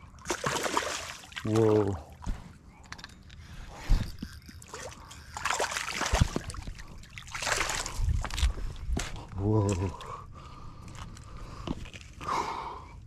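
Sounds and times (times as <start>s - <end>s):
fish splashing in shallow water: 0.1s - 1.8s, 4.4s - 8.3s.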